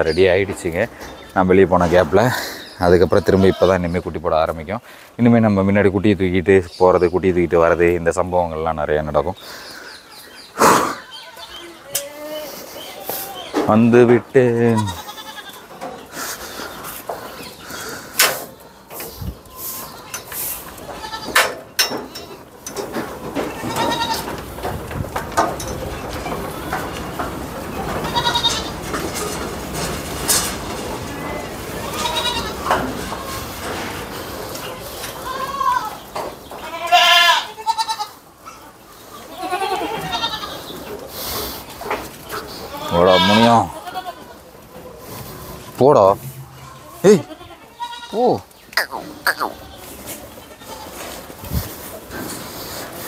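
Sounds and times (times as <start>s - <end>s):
goats bleating: 2.3s - 4.1s, 14.5s - 15.8s, 20.8s - 21.4s, 23.4s - 24.4s, 27.9s - 28.9s, 31.7s - 32.9s, 35.1s - 40.7s, 42.4s - 44.4s, 46.3s - 51.2s.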